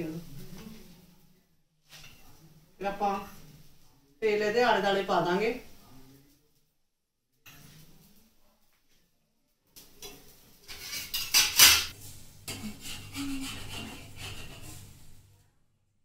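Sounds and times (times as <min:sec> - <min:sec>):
metal utensil scraping a pan: 0:01.9 - 0:03.7, 0:07.5 - 0:08.1, 0:09.8 - 0:15.3.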